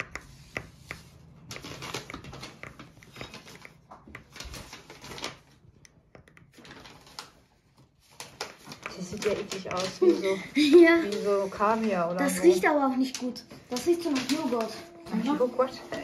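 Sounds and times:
spoon mashing beads in cup: 0:00.0 - 0:04.8.

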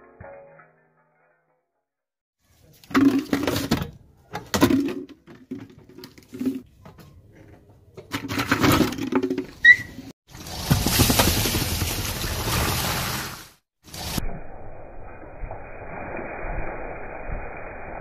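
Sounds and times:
short sharp squeak: 0:09.6 - 0:10.1.

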